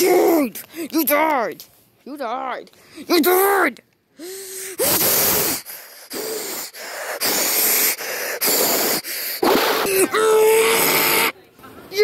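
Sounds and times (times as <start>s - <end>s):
person huffing and hissing: 4.2s - 11.3s.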